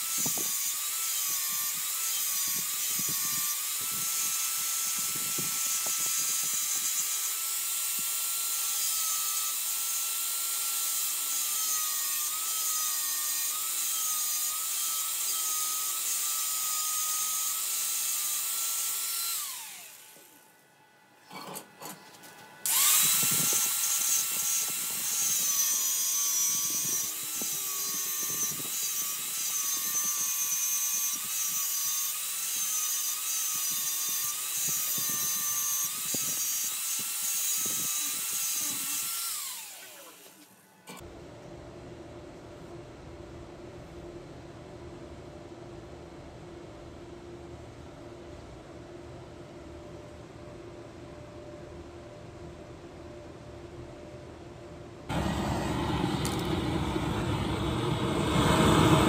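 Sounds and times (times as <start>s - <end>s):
angle grinder grinding steel: 0.0s - 20.4s, 22.7s - 41.0s.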